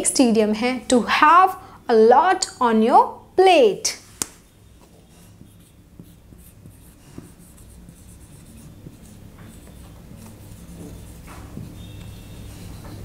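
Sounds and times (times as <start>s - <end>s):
marker pen scratching on whiteboard: 4.4s - 13.0s.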